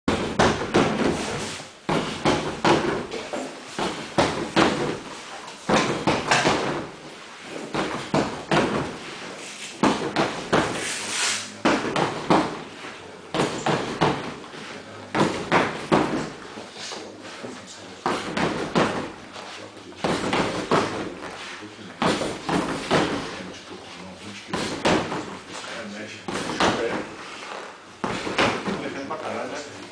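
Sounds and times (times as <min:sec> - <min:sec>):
punches hitting heavy bag: 0:00.1 - 0:03.1, 0:03.8 - 0:05.1, 0:05.7 - 0:07.0, 0:07.7 - 0:09.0, 0:09.8 - 0:10.8, 0:11.6 - 0:12.7, 0:13.3 - 0:14.4, 0:15.1 - 0:16.4, 0:18.1 - 0:19.2, 0:20.0 - 0:21.2, 0:22.0 - 0:23.4, 0:24.5 - 0:25.4, 0:26.3 - 0:27.1.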